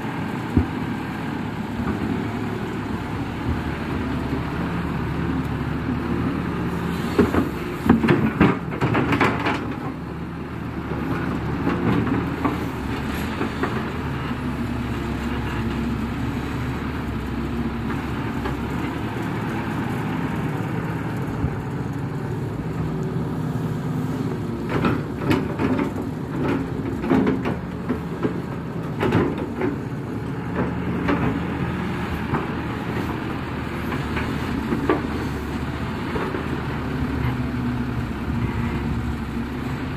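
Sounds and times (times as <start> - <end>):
excavator diesel engine running: 0.0 - 39.9
excavator bucket clanking: 7.2 - 10.0, 24.6 - 31.5.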